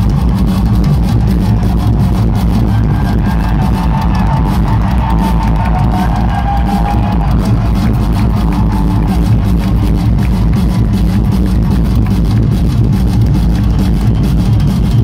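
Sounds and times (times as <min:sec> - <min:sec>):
drum kit: 0:00.0 - 0:15.0.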